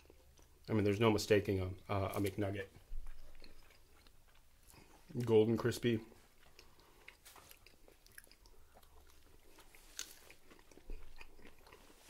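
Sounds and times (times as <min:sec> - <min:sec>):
chewing crispy food: 0:00.0 - 0:12.0.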